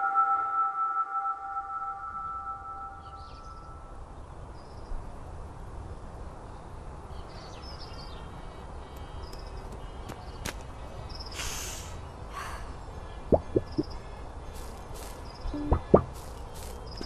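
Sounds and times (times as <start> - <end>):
held musical chime: 0.0 - 4.0
bird chirps: 1.8 - 3.9, 12.8 - 14.0
steady hiss: 11.3 - 12.1, 14.5 - 17.0.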